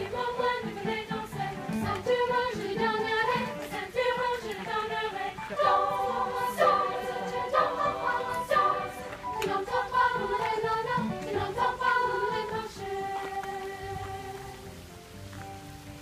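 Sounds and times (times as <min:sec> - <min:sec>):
girls' choir singing: 0:00.0 - 0:14.6.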